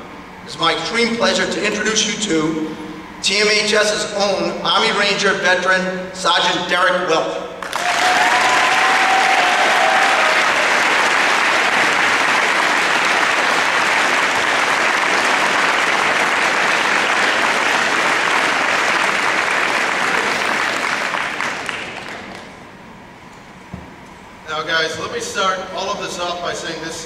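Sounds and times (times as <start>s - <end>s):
large audience applauding: 7.6s - 22.6s.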